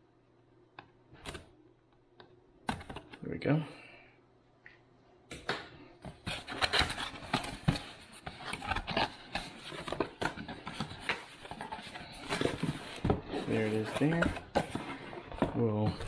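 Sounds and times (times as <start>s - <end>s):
cardboard packaging rustling and scraping: 6.2s - 16.0s.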